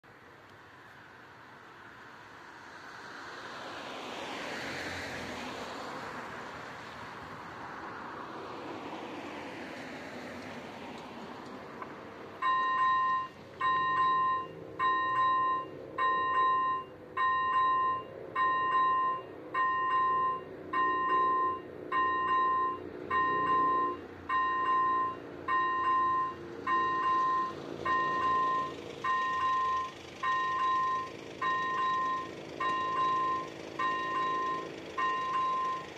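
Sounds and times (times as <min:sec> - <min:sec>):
road traffic passing: 0:00.0 - 0:35.9
crossing warning bell ringing: 0:12.4 - 0:35.9.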